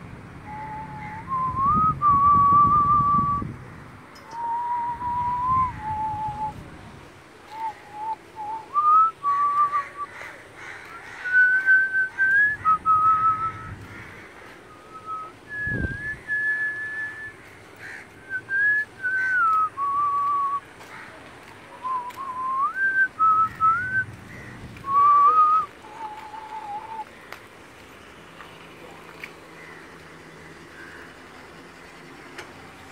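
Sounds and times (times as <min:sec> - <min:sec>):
person whistling a slow tune: 0:00.5 - 0:03.4, 0:04.3 - 0:06.6, 0:07.5 - 0:10.0, 0:11.3 - 0:13.7, 0:14.7 - 0:17.4, 0:18.3 - 0:20.6, 0:21.8 - 0:24.1, 0:24.9 - 0:27.0.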